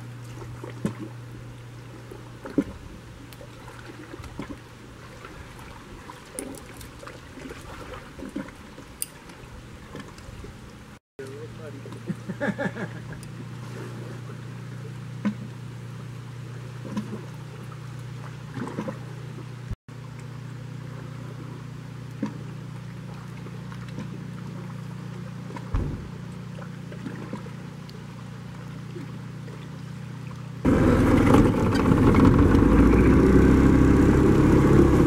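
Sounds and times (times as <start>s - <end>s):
boat engine idling: 8.6s - 35.0s.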